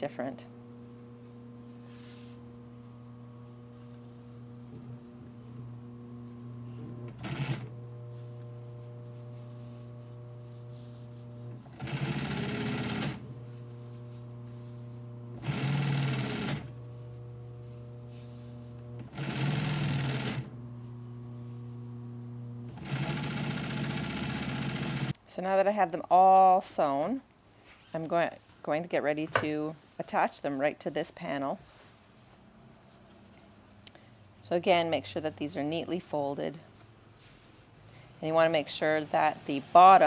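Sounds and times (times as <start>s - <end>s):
steady machine hum: 0.0s - 25.1s
sewing machine stitching: 6.7s - 7.8s, 10.7s - 13.3s, 15.3s - 16.8s, 18.6s - 20.6s, 22.6s - 25.1s.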